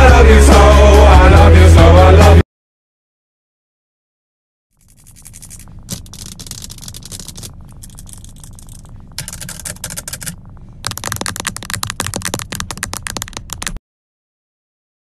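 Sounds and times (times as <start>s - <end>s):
steady low hum: 4.8s - 13.8s
fake nails clicking together: 5.1s - 13.8s.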